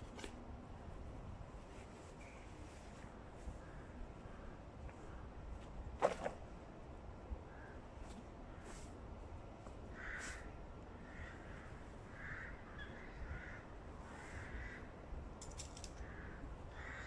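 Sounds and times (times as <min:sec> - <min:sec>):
crows cawing: 0:09.9 - 0:14.9, 0:15.9 - 0:17.0.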